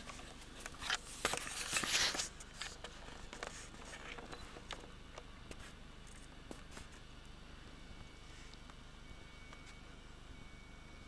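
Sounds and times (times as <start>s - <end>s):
close rustling: 0.0s - 4.8s.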